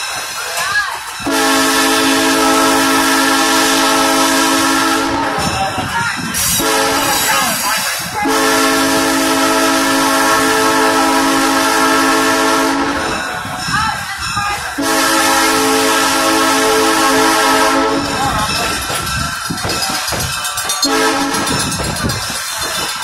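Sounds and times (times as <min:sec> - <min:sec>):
train wheels clattering on rails: 0:00.0 - 0:23.0
train horn blasts: 0:01.2 - 0:05.6, 0:06.4 - 0:07.3, 0:08.2 - 0:13.2, 0:14.7 - 0:18.6, 0:20.8 - 0:21.9.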